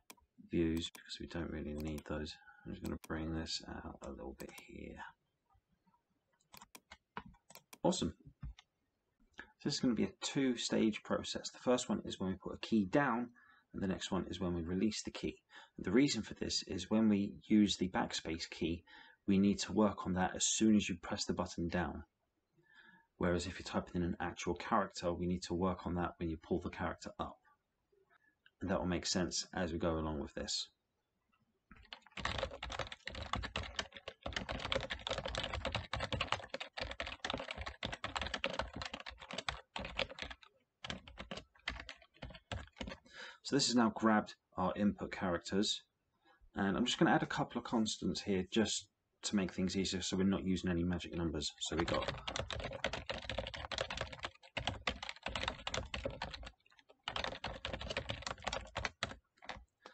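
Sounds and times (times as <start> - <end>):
fast typing on keyboard: 1.7 - 2.2, 2.8 - 3.2, 4.4 - 4.7, 6.6 - 8.6, 31.7 - 43.1, 51.7 - 59.6.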